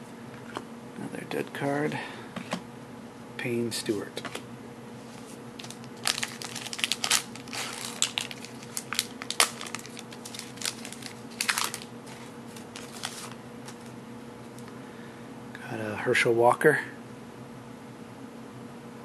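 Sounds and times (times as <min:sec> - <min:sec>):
card packaging crinkling: 0:05.6 - 0:14.0.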